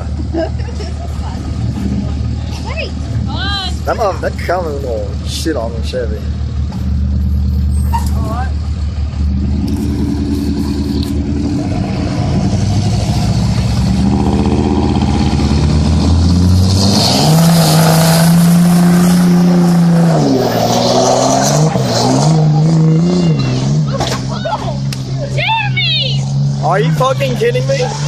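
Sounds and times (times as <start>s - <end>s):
truck engines revving under load: 0.0s - 28.0s.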